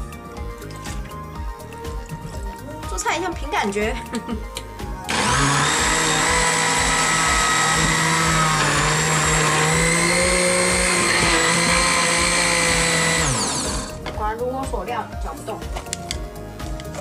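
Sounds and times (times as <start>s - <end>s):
blender motor whining: 5.1s - 14.0s.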